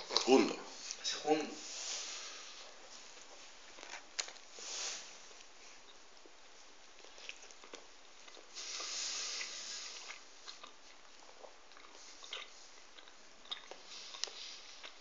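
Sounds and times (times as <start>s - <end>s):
soft hiss: 0.0s - 15.0s
chewing doughnut: 5.3s - 15.0s.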